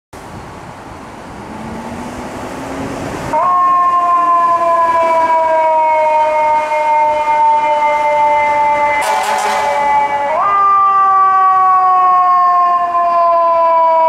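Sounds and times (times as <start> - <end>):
street noise: 0.1 - 14.0
fire engine air horn blast: 5.1 - 10.6.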